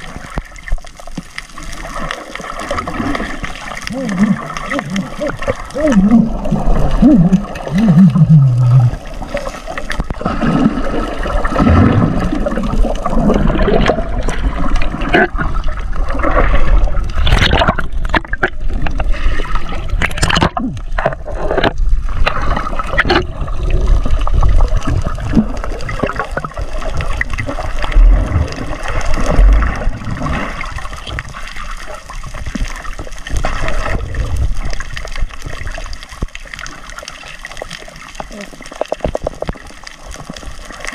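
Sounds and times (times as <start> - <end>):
underwater water rush and bubbles: 0.0 - 40.9
sharp underwater clicks: 17.1 - 23.4.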